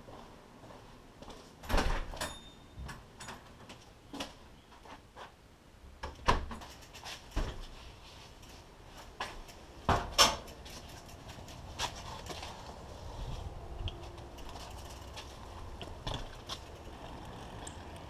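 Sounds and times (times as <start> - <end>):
bike knocking and rattling: 6.0 - 18.0
bike banging through door: 9.8 - 10.5.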